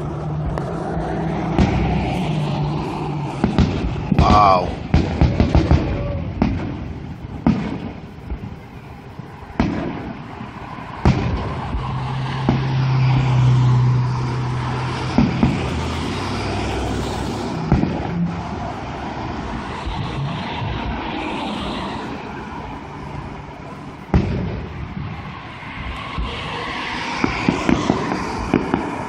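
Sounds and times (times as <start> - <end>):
car engine drone: 0.0 - 29.0
fireworks booming: 0.0 - 29.0.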